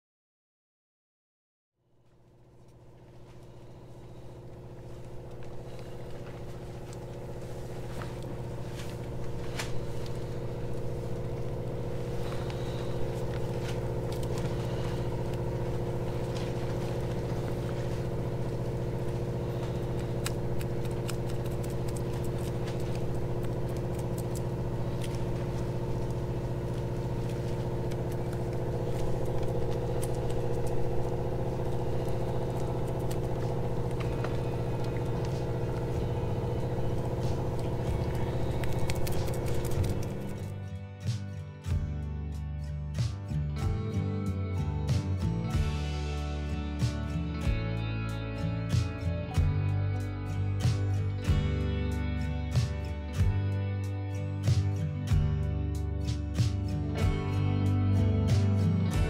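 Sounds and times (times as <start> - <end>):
motor humming: 2.3 - 40.8.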